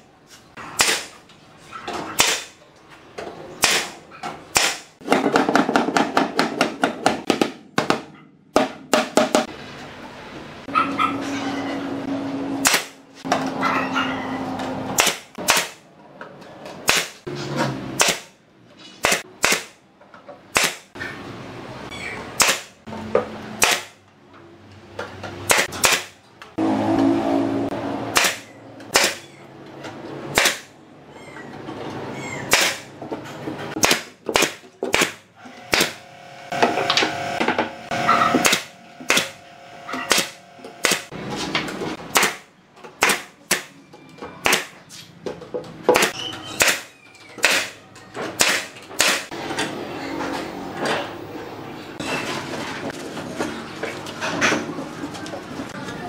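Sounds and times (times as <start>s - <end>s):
nail gun firing: 0.8s - 1.2s, 2.1s - 2.6s, 3.6s - 8.0s, 12.6s - 13.0s, 15.0s - 15.8s, 16.8s - 17.2s, 18.0s - 18.4s, 19.0s - 19.8s, 20.5s - 20.9s, 22.4s - 22.7s, 23.6s - 24.0s, 25.5s - 26.2s, 28.1s - 29.2s, 30.3s - 30.7s, 32.5s - 32.9s, 33.8s - 37.1s, 38.2s - 41.1s, 42.1s - 43.8s, 44.4s - 44.8s, 45.9s - 49.3s.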